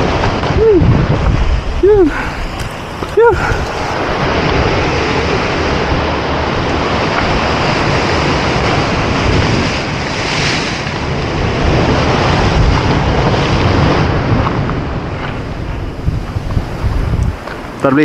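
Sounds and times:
sea waves breaking on rock: 0.0s - 18.0s
wind buffeting microphone: 0.0s - 18.0s.

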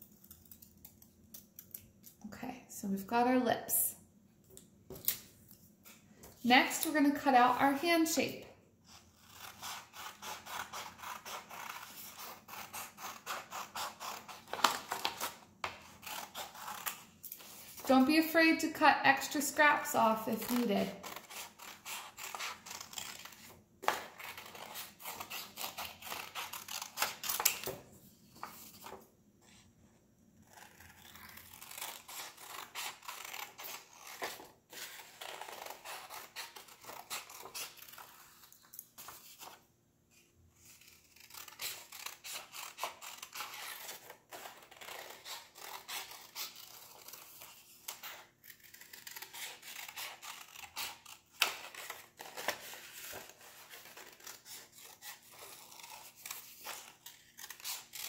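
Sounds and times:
scissors snipping paper: 9.2s - 18.1s, 19.6s - 27.8s, 30.4s - 39.6s, 40.6s - 58.0s.

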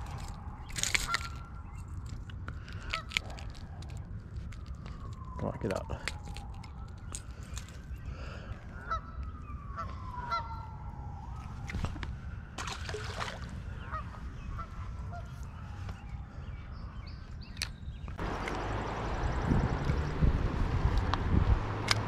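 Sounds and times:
birds honking calls: 8.0s - 10.7s, 13.6s - 15.8s
sharp clicks: 21.8s - 22.0s.

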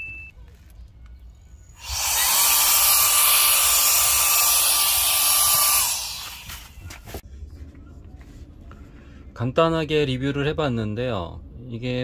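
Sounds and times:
mini blower running: 1.8s - 6.8s.

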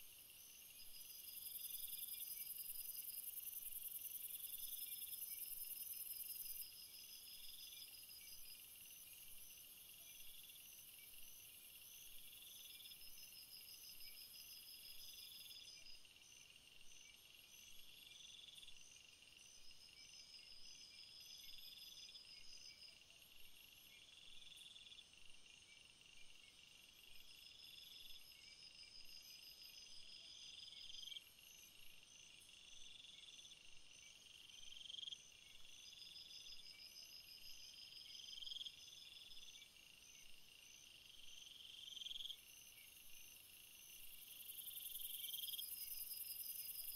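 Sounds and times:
insect chirping: 0.0s - 46.9s.

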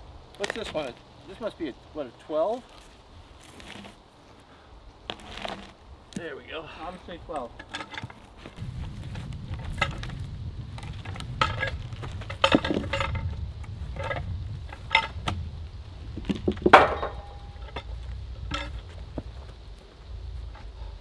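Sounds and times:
metal clanks and knocks: 7.4s - 8.2s, 11.0s - 15.4s, 16.2s - 19.3s
steady low rumble: 8.3s - 21.0s.

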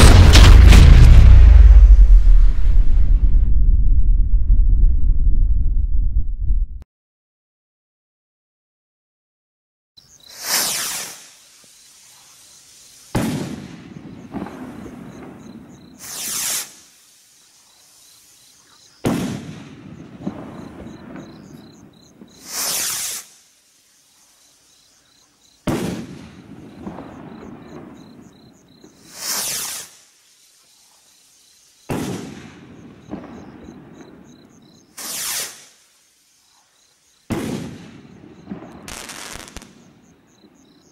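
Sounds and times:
firework bang: 0.0s - 5.1s, 13.1s - 16.7s, 19.0s - 23.2s, 25.7s - 28.1s, 31.9s - 34.1s, 37.3s - 39.9s
firework rocket launch whoosh: 0.0s - 5.1s, 10.3s - 17.2s, 22.4s - 23.4s, 29.0s - 30.1s, 35.0s - 35.9s.

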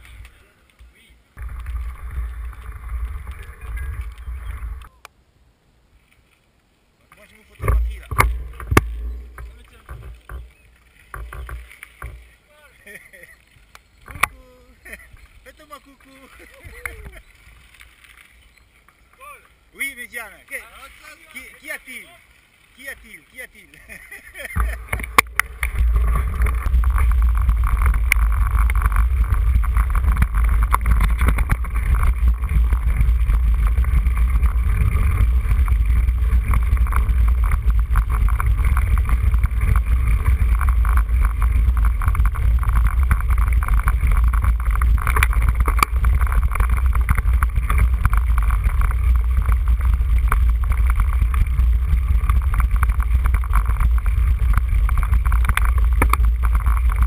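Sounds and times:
bike rattling on dirt track: 1.4s - 4.9s, 7.2s - 19.0s, 23.3s - 57.0s
wind rumble on microphone: 1.4s - 4.9s, 7.6s - 12.2s, 24.3s - 57.0s.

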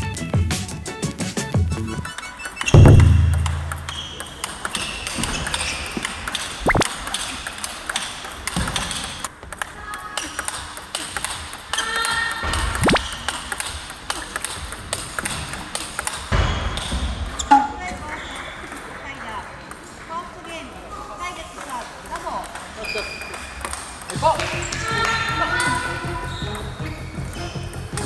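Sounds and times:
short rising squeaks: 2.5s - 4.4s.

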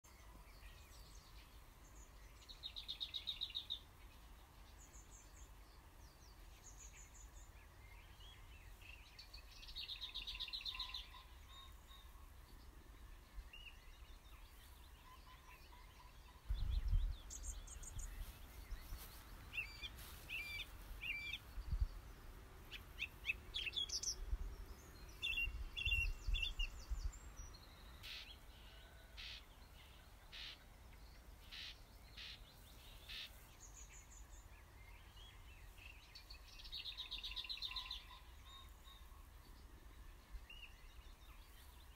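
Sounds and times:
faint outdoor hiss: 0.0s - 41.9s
songbirds singing: 0.0s - 41.9s
low rumbling wind gusts: 16.4s - 19.5s, 20.7s - 28.0s.

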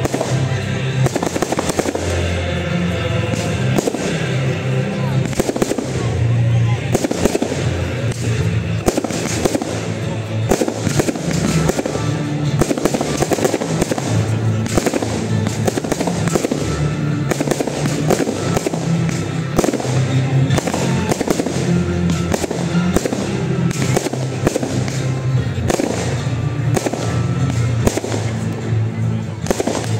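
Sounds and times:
fireworks bangs and crackles: 0.0s - 29.9s.

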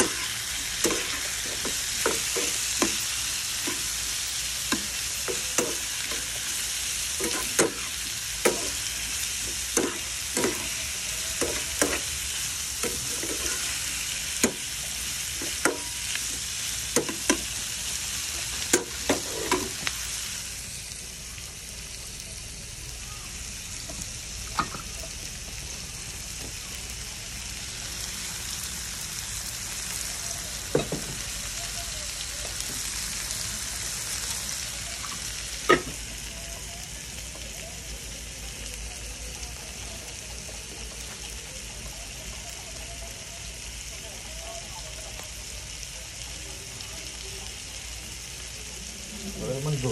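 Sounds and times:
spatula scraping a pan: 0.0s - 14.7s, 18.4s - 19.9s
shrimp sizzling in oil: 0.0s - 49.9s.

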